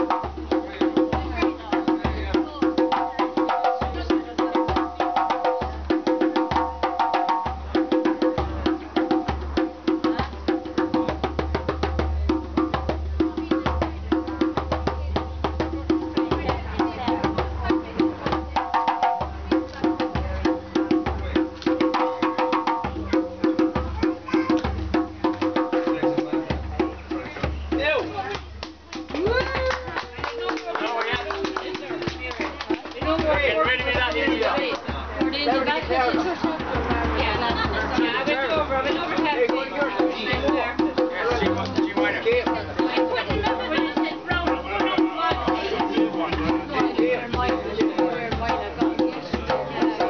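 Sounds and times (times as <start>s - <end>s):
djembe hand drumming: 0.0s - 50.0s
beat music with clicking percussion: 38.8s - 50.0s.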